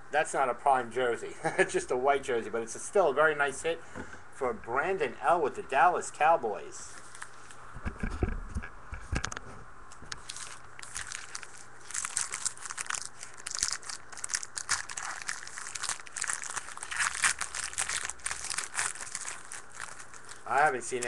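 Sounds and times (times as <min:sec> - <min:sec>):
plastic wrapper tearing and crinkling: 0:10.2 - 0:21.0.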